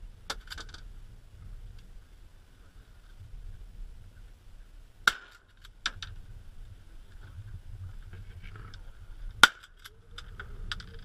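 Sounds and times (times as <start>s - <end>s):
low outdoor rumble: 0.0s - 11.0s
loud sharp crack: 5.0s - 5.5s.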